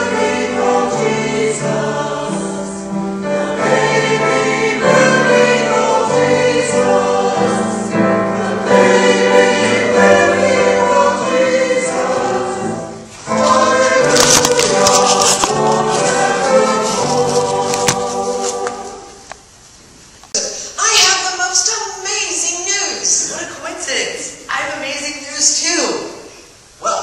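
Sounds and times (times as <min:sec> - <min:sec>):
piano accompaniment: 0:00.0 - 0:19.3
church choir singing: 0:00.0 - 0:19.4.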